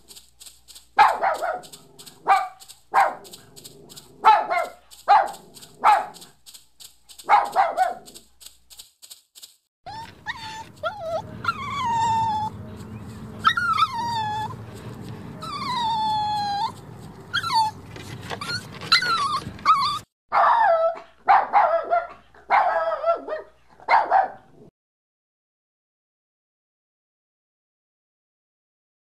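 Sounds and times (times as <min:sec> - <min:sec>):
dog yelping: 0:01.0 - 0:06.3, 0:07.2 - 0:08.3, 0:09.9 - 0:24.4
dog whining: 0:09.9 - 0:21.0.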